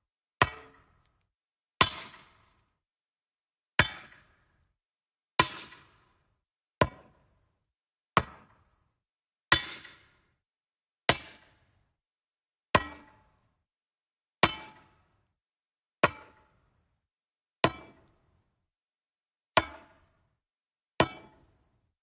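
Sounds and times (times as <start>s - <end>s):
metal striking wood: 0.4s - 1.0s.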